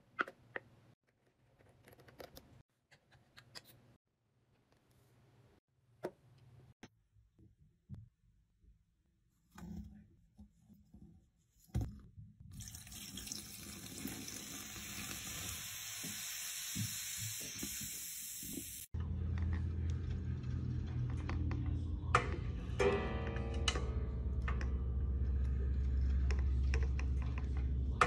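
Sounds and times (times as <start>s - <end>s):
low steady hum: 19.0s - 28.0s.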